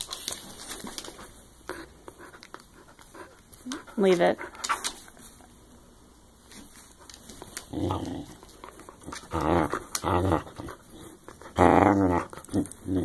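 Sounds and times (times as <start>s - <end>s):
dog growling: 7.6s - 13.0s.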